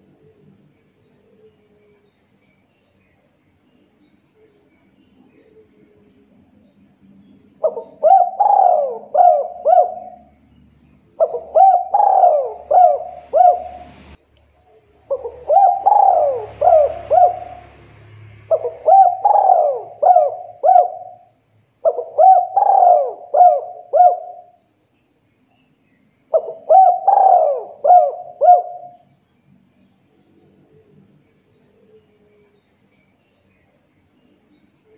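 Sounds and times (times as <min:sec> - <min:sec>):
dove cooing: 0:07.6 - 0:10.4, 0:11.1 - 0:14.2, 0:15.0 - 0:21.2, 0:21.8 - 0:24.6, 0:26.3 - 0:29.1.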